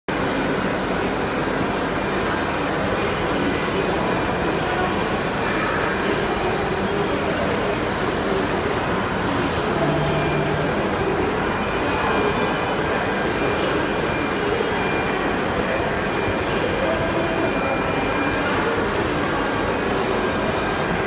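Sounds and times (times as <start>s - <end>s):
exhibition hall din: 0.1s - 21.0s
cnc router running: 1.2s - 21.0s
low hum: 9.6s - 11.4s.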